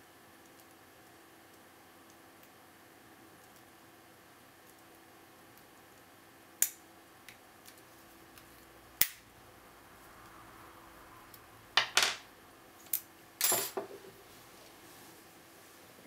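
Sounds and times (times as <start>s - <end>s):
metal knocks on wooden table: 13.5s - 14.1s.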